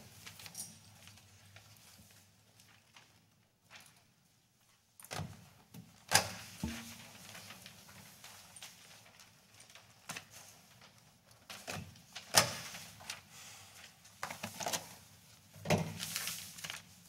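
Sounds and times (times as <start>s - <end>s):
paper rustling: 15.9s - 17.0s.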